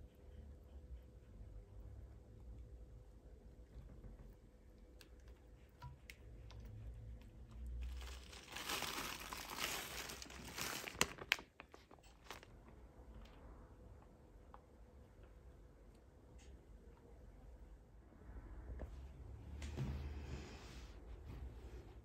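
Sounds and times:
plastic bag crinkling: 7.6s - 12.7s.

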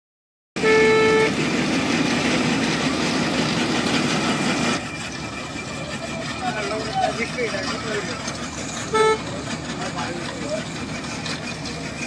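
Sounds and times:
horn toot: 0.6s - 1.4s, 8.9s - 9.3s
asphalt plant machinery running: 0.6s - 12.0s.

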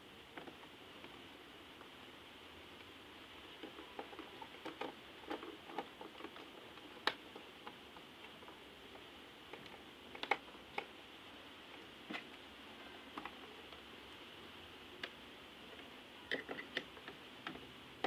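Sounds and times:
plastic clicks and taps: 16.3s - 17.6s.

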